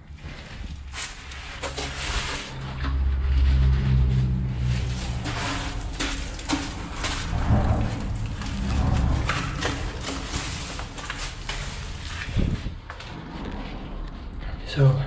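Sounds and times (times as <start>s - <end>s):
traffic rumble overhead: 0.1s - 15.0s
footsteps on dry leaves: 3.3s - 12.6s.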